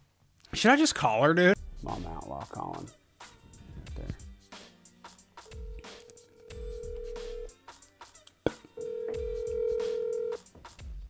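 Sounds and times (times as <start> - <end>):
background music with steady beat: 1.5 - 11.0
phone ringback tone: 5.5 - 7.5, 8.8 - 10.4.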